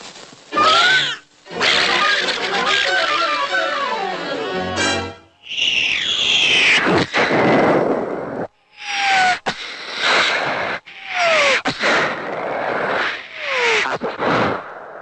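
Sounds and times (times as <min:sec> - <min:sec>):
falling whistle: 0:05.4 - 0:06.9, 0:08.8 - 0:09.4
cartoon explosion blasts: 0:06.4 - 0:08.4.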